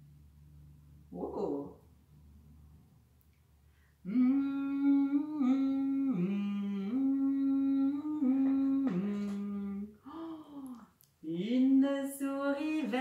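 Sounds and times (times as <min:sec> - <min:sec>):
woman humming a tune: 0:04.1 - 0:12.0.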